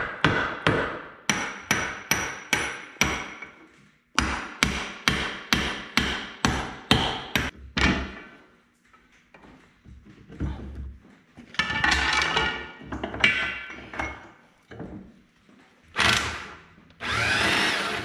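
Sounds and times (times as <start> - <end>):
hammer striking steel pin: 0.0 - 3.6, 4.2 - 8.2.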